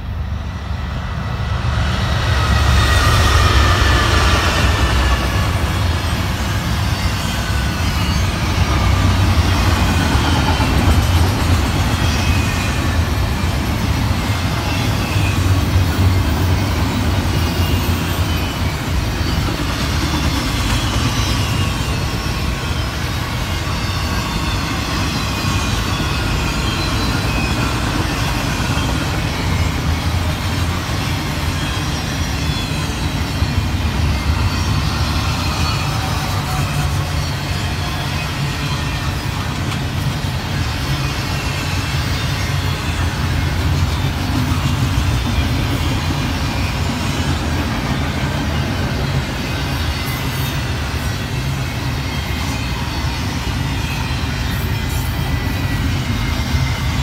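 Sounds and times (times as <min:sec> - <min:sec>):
freight cars rumbling past: 0:00.0 - 0:11.0
diesel locomotives rumbling: 0:00.0 - 0:57.0.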